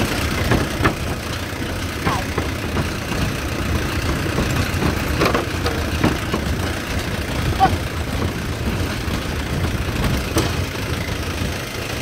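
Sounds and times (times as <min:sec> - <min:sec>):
truck body knocks and rattles: 0:00.0 - 0:12.0
truck engine running: 0:00.0 - 0:12.0.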